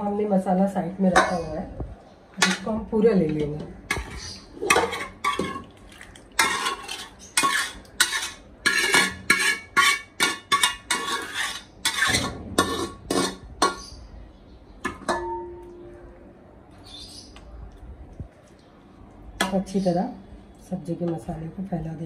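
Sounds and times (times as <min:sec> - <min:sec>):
metal spoon scraping metal bowl: 0:06.4 - 0:14.0.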